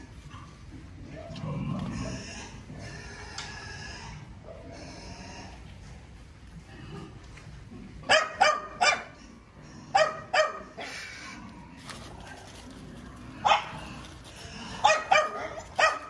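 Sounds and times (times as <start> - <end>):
puppy barking: 8.1 - 9.1, 9.9 - 10.9, 13.4 - 13.8, 14.8 - 16.0.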